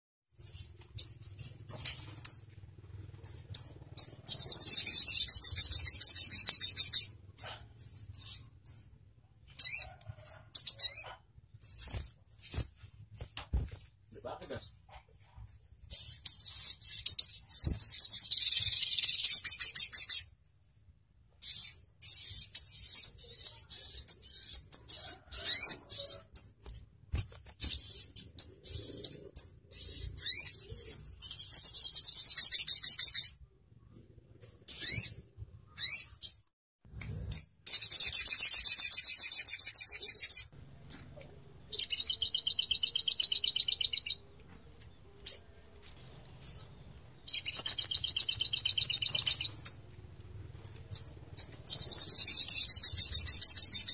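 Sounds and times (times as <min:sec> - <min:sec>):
bird trilling: 0:00.3 - 0:02.5, 0:03.1 - 0:08.9, 0:09.6 - 0:12.6, 0:16.0 - 0:20.3, 0:34.4 - 0:36.4, 0:37.3 - 0:44.3, 0:45.3 - 0:49.9, 0:50.6 - 0:53.9
bird chirps and rising whistles: 0:03.2 - 0:07.1, 0:41.8 - 0:44.3, 0:47.3 - 0:49.8.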